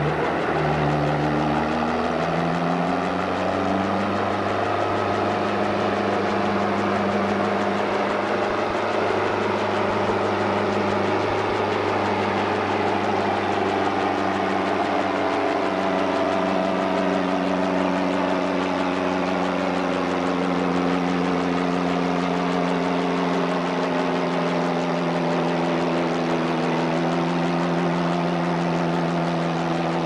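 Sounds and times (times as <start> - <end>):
tractor engine under load: 0.0 - 30.0.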